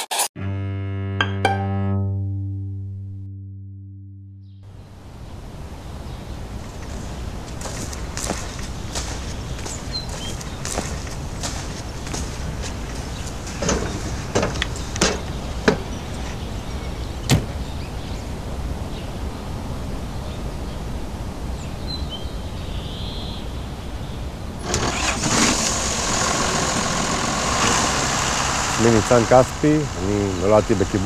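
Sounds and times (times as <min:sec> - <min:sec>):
tractor diesel engine running: 0:06.6 - 0:16.2, 0:24.6 - 0:31.0
sharp knocks and clicks: 0:13.6 - 0:15.9.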